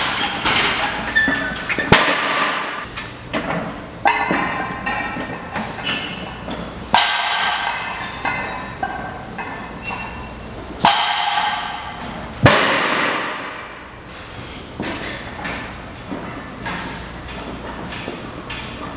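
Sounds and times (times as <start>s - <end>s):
metal frame clanking and rattling: 0.0s - 13.7s, 14.8s - 18.9s
loud metallic clangs ringing: 6.9s - 14.0s.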